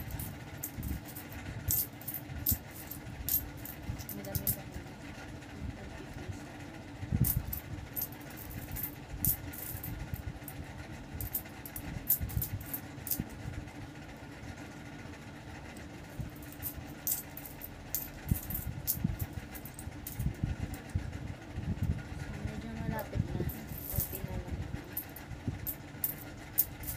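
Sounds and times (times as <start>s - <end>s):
coins clinking: 0.0s - 4.6s, 7.2s - 9.9s, 11.2s - 13.2s, 16.4s - 20.2s, 23.5s - 24.3s, 25.0s - 26.9s
steady low hum: 0.0s - 26.9s.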